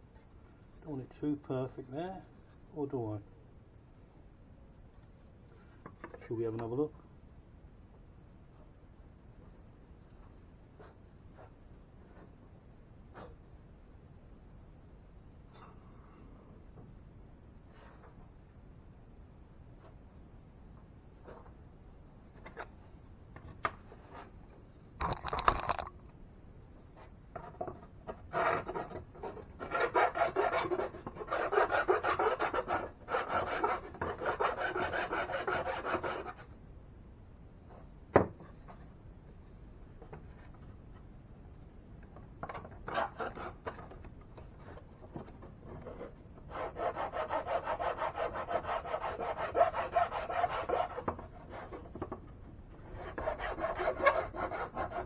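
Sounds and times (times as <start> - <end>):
sandpaper scratching on plywood: 28.3 - 36.4.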